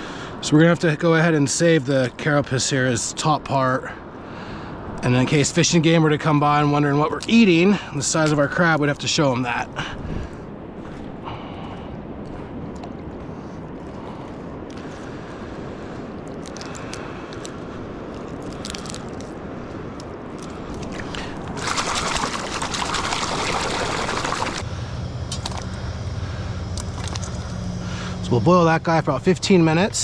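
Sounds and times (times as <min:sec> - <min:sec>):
steady low hum: 0:03.8 - 0:30.0
water washing on pebbly shore: 0:18.2 - 0:19.4, 0:20.3 - 0:24.6
water splashing: 0:20.4 - 0:24.7.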